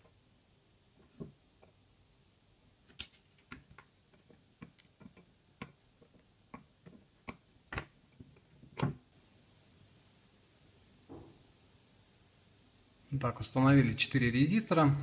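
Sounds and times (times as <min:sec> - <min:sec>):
sharp clicks and taps of tools: 0:03.5 - 0:07.6.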